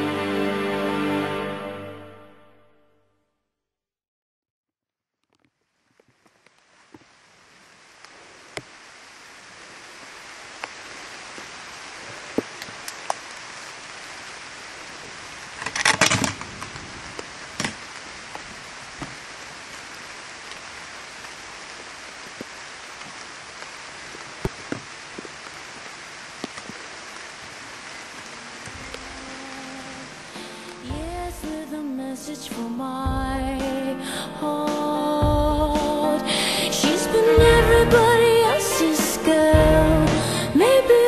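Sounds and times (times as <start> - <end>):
rain-like water hiss: 5.4 - 41.0
water drips and ticks: 10.0 - 13.4, 20.4 - 29.1.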